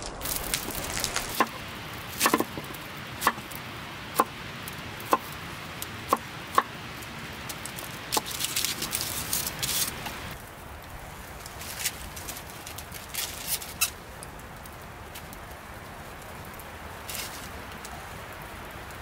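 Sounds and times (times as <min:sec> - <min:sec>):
knife chopping on wooden board: 0:02.2 - 0:02.6, 0:03.2 - 0:03.4.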